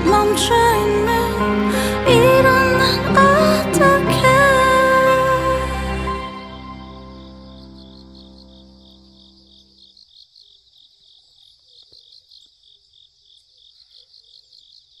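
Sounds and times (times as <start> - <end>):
background music: 0.0 - 9.6
crickets chirping: 6.8 - 15.0.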